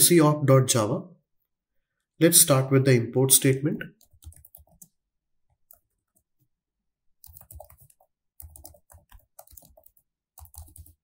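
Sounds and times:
computer keyboard typing: 4.0 - 6.5, 7.2 - 11.0.

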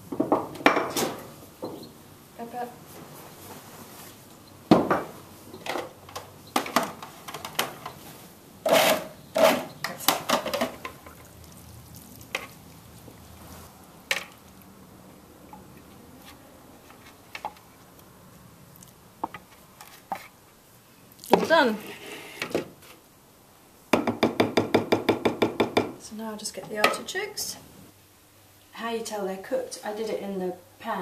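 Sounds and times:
knife scraping a bowl: 8.6 - 9.8.

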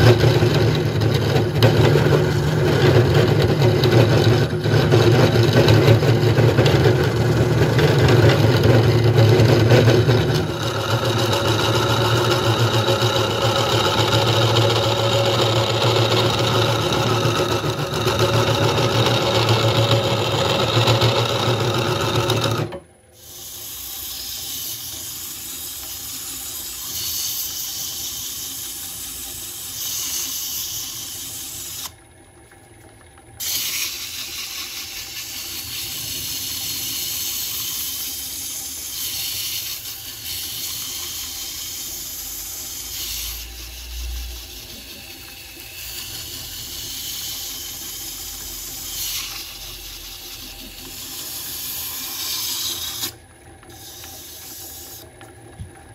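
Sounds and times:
gouge cutting wood on lathe: 0.0 - 31.9, 33.4 - 55.1
faint lathe hum: 0.0 - 55.9
hiss of hand-sanding wood: 23.2 - 31.9, 33.4 - 55.0.

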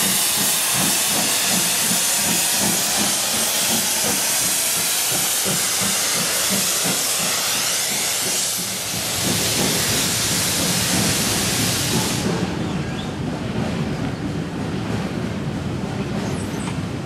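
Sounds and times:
steam locomotive hissing: 0.0 - 12.9.

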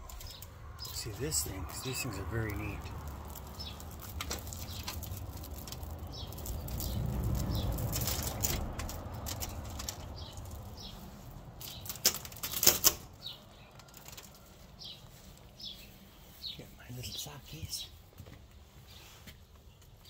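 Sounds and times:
low rustling rumble: 0.0 - 13.7
small birds chirping: 0.0 - 20.0.

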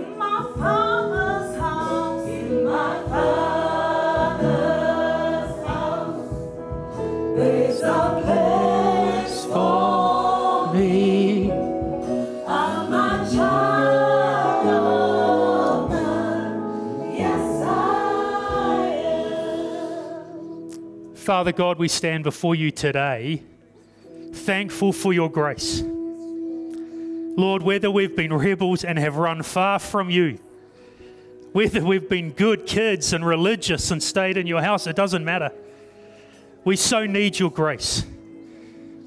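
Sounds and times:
women singing gospel song: 0.0 - 20.7.

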